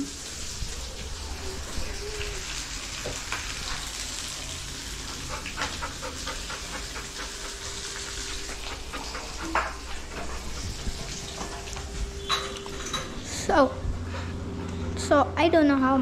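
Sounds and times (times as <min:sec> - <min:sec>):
food sizzling in oil: 0:00.0 - 0:05.6
oil crackling and popping: 0:00.0 - 0:05.8.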